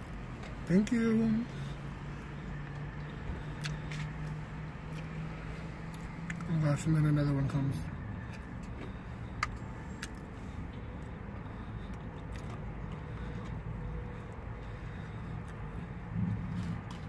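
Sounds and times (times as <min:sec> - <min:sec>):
vehicle rumble: 0:00.0 - 0:17.0
quiet chewing: 0:01.5 - 0:06.5, 0:08.2 - 0:17.0.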